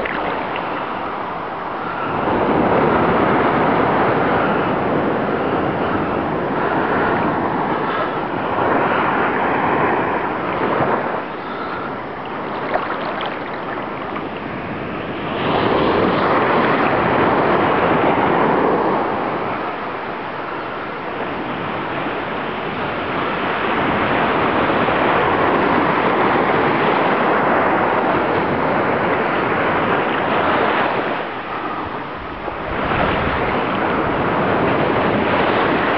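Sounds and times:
water splashing from boat: 0:00.0 - 0:35.9
wind buffeting microphone: 0:00.0 - 0:35.9.

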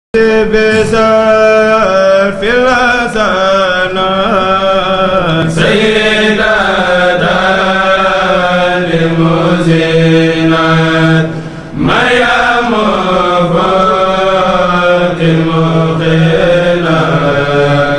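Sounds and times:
men chanting: 0:00.2 - 0:17.9.

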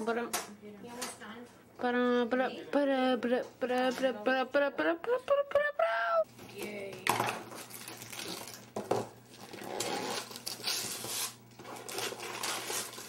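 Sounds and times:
wrapping paper rustling and tearing: 0:07.5 - 0:08.7, 0:09.3 - 0:13.0.

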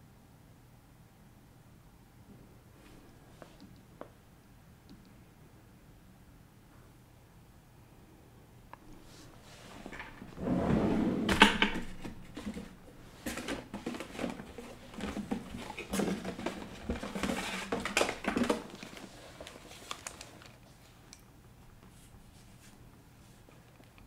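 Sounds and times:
desk equipment handling noise: 0:09.6 - 0:19.0.

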